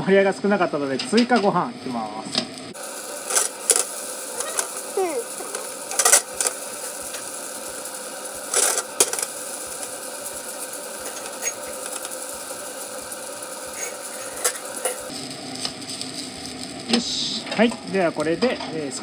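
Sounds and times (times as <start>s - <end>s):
food sizzling in a frying pan: 0.0s - 19.0s
spatula scraping a pan: 11.0s - 12.2s, 13.7s - 15.2s.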